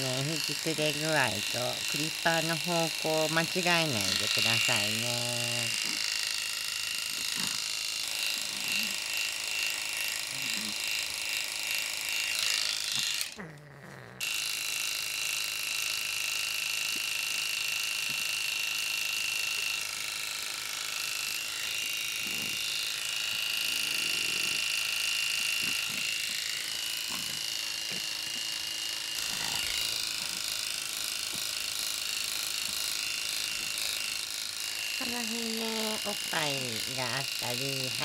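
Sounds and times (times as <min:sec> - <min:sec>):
electric clippers buzzing: 0:00.0 - 0:38.0.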